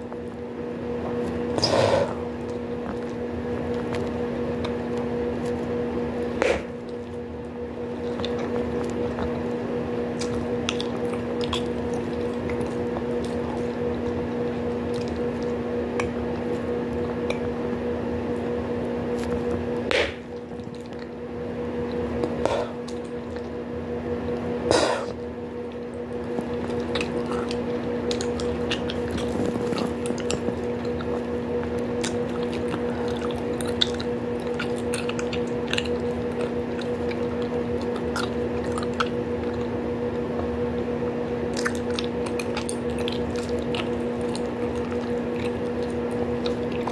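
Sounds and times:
steady low hum: 0.0 - 46.9
bubblegum chewing and snapping: 2.4 - 17.6, 24.7 - 40.5, 41.4 - 46.9.

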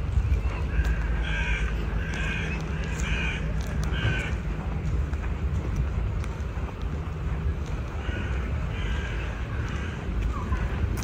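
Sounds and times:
low background rumble: 0.0 - 11.0
crow cawing: 0.7 - 4.4, 8.0 - 10.0.

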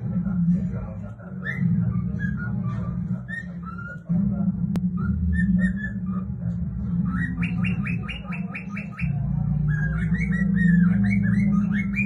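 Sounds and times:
low hum: 0.0 - 12.0
cockatiel whistling: 5.0 - 6.2, 7.1 - 12.0.

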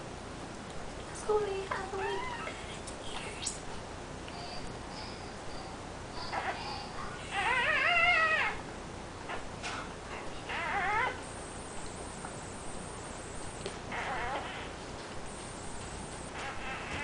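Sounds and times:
faint puppy squeaks: 1.9 - 3.6, 4.3 - 8.6, 10.2 - 17.0
newborn puppy crying: 6.2 - 8.7, 10.4 - 11.8, 12.9 - 14.7.

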